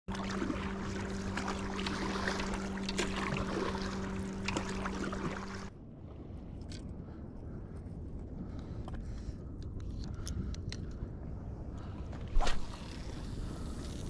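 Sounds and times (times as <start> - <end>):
paddle splashing in water: 0.1 - 5.7
steady low hum: 0.1 - 14.0.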